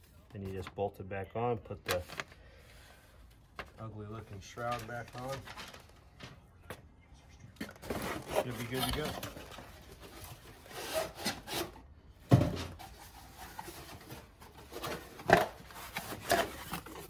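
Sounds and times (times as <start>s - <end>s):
cardboard rubbing and rustling: 7.8s - 11.8s, 12.7s - 17.0s.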